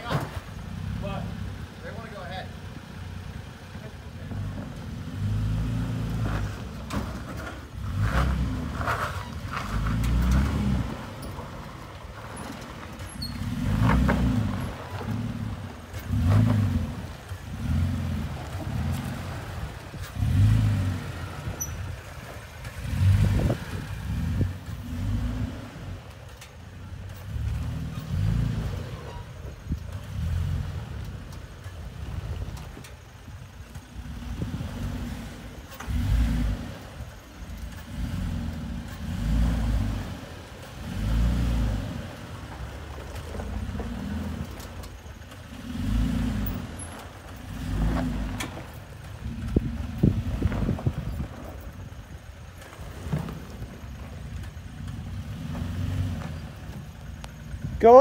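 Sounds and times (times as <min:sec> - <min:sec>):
truck engine rumbling: 0:00.0 - 0:58.0.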